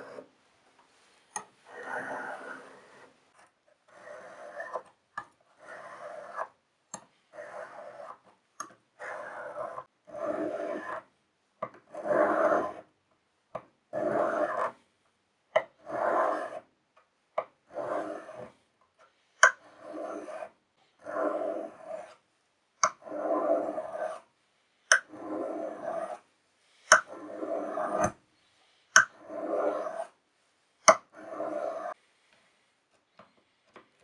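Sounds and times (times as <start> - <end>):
blade rasping on whetstone: 3.9 - 4.8, 5.6 - 6.5, 7.3 - 8.2, 9.0 - 11.0, 12.0 - 12.8, 14.0 - 14.8, 15.9 - 16.6, 17.7 - 18.5, 19.6 - 22.2, 22.8 - 24.2, 24.9 - 26.2, 26.9 - 28.2, 29.0 - 30.1, 31.2 - 32.0.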